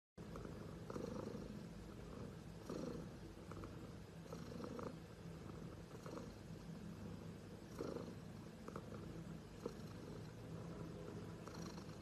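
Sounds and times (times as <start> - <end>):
cat purring: 0.2 - 12.0.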